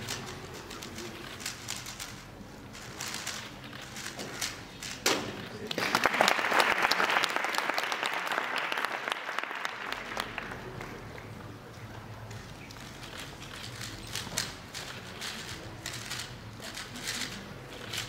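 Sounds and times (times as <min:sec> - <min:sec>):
audience applauding: 0:05.6 - 0:11.3.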